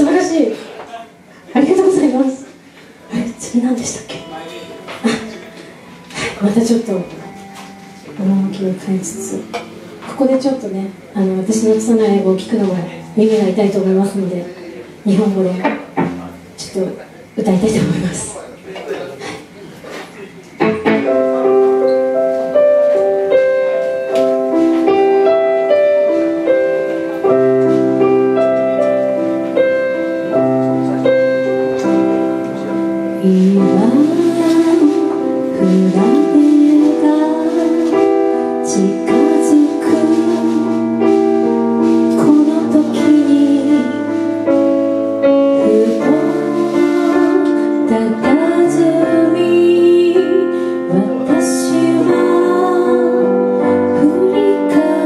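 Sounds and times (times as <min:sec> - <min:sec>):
woman singing: 0:33.2 - 0:41.2, 0:41.8 - 0:44.3, 0:45.4 - 0:55.0.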